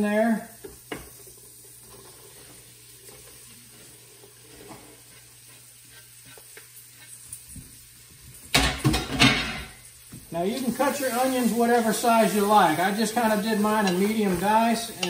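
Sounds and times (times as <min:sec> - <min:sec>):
vegetables sizzling in a pot: 0:00.0 - 0:15.0.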